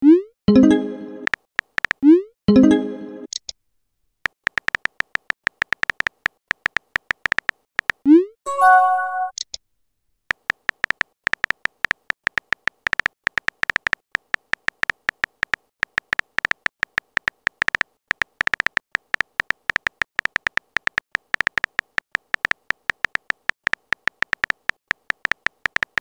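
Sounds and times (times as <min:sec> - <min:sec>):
keyboard taps: 0:04.5 - 0:08.0, 0:10.3 - 0:26.0
short multi-tone chime: 0:08.5 - 0:09.3.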